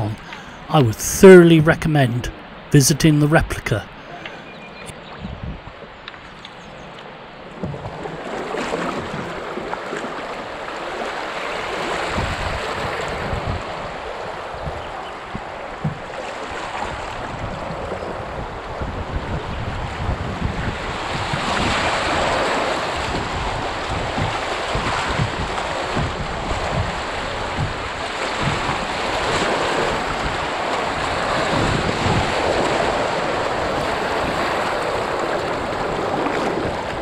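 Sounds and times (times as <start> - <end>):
wind buffeting microphone: 4.0 - 5.8, 11.9 - 37.0
whitewater rushing and splashing: 21.1 - 37.0.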